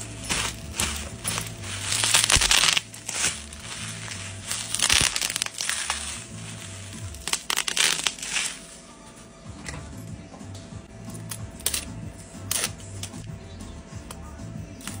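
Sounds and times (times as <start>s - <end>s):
plastic packaging crumpling: 0.0s - 8.8s.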